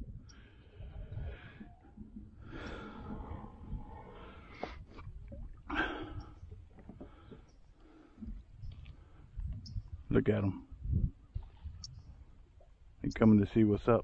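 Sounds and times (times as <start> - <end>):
low steady rumble: 0.0 - 6.7
man breathing heavily: 2.4 - 3.4.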